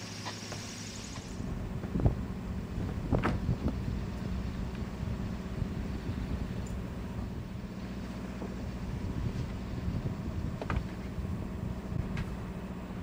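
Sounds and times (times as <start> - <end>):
wind buffeting microphone: 1.4 - 7.6, 8.5 - 12.6.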